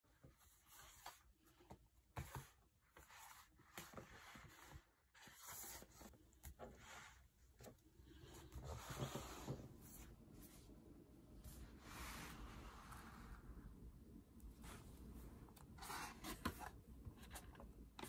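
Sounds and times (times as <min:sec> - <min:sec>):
books sliding on wooden table: 0:08.6 - 0:10.1.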